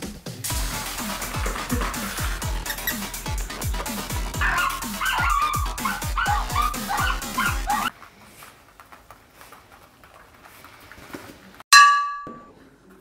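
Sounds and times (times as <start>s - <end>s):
music with deep bass beat: 0.0s - 7.9s
dog whining and yipping: 4.4s - 7.9s.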